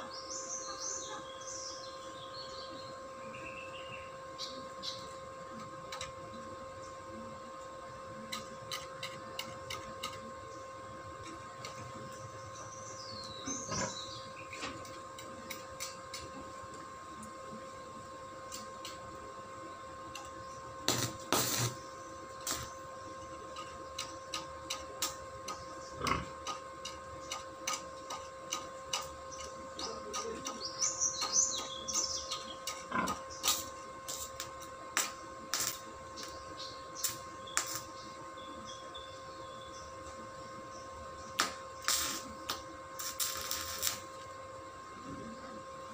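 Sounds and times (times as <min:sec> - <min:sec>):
birds chirping: 0:00.0 - 0:05.3, 0:10.2 - 0:15.1, 0:27.1 - 0:34.1, 0:35.1 - 0:42.6
steady electrical hum: 0:00.0 - 0:45.9.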